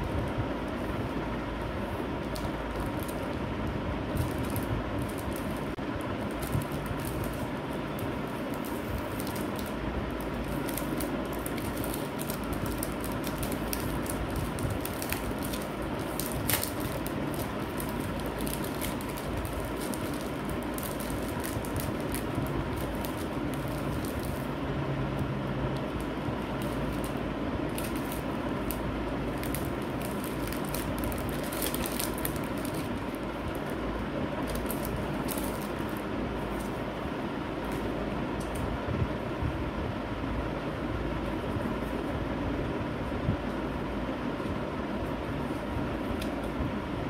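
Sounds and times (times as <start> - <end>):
steady background hum: 0.0 - 47.0
plastic packaging crinkling: 1.8 - 24.6, 25.7 - 37.0.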